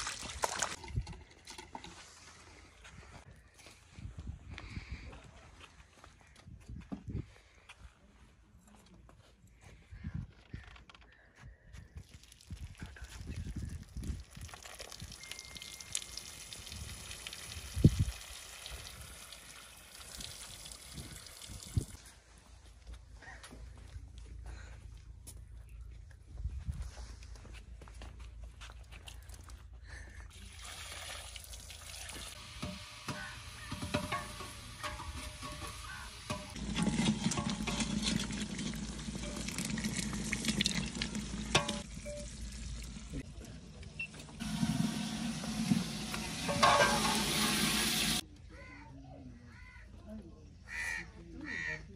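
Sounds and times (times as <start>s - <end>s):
rice and water pouring: 0.0s - 2.7s, 12.0s - 22.0s, 30.3s - 43.2s, 44.4s - 48.2s
metal ladle scraping pot: 32.6s - 40.2s, 41.4s - 42.2s, 44.4s - 48.2s.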